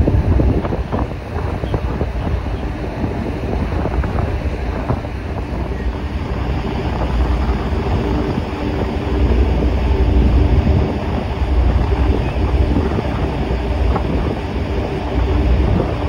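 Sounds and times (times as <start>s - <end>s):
faint steady hum: 0.0s - 16.0s
low ship rumble: 0.0s - 16.0s
rush of ship wake: 0.0s - 16.0s
wind buffeting microphone: 0.0s - 16.0s.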